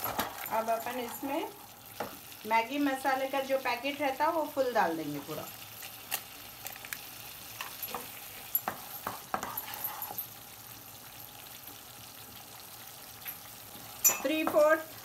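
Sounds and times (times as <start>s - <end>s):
sauce sizzling in a pan: 0.0s - 15.0s
wooden spatula scraping a pan: 8.7s - 10.2s.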